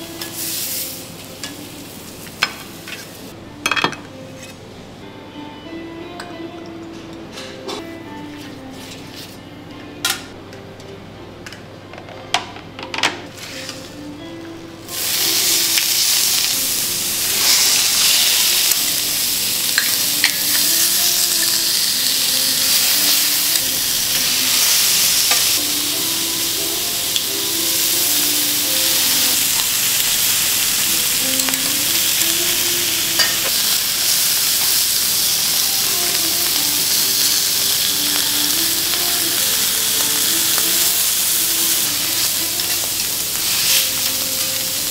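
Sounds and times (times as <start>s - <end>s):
seafood sizzling on a griddle: 0.0s - 3.3s, 14.9s - 44.9s.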